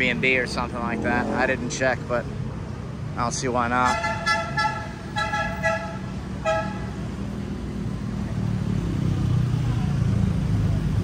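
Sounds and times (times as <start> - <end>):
vehicle engine drone: 0.0 - 11.0
vehicle horn toots: 3.8 - 6.9.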